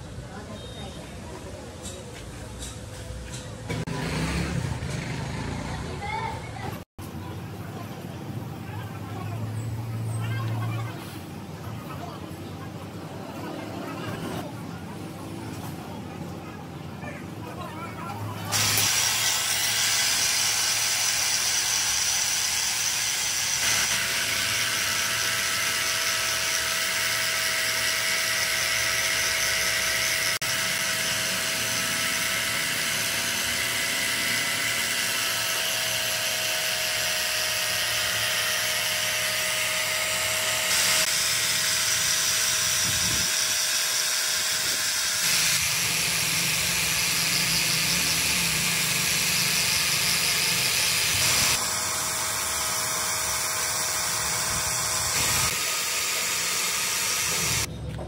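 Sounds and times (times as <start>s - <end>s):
power tool whining: 18.5s - 57.7s.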